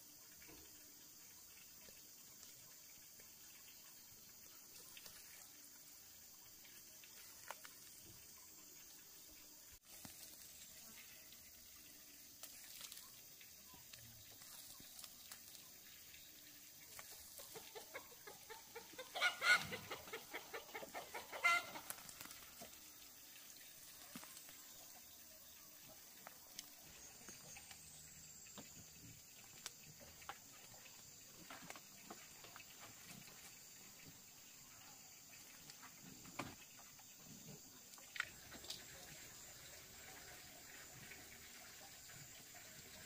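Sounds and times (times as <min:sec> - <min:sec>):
chicken clucking: 0:16.9 - 0:22.7
chicken crying loudly: 0:18.5 - 0:21.9.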